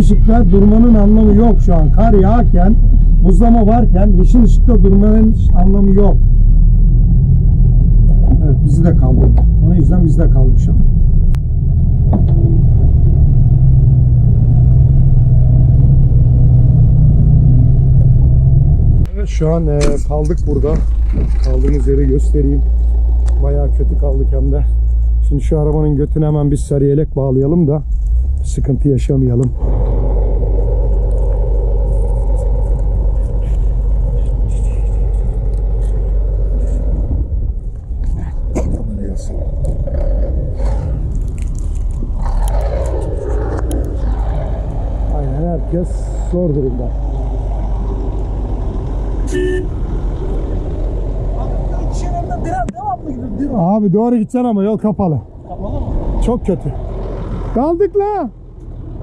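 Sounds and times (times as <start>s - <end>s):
diesel truck engine idling: 17.7s - 27.5s, 28.9s - 42.2s.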